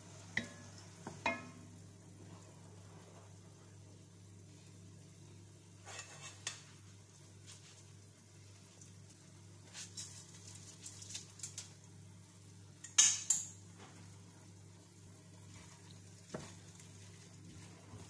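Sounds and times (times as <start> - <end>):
spoon scraping in metal pot: 5.8 - 6.6.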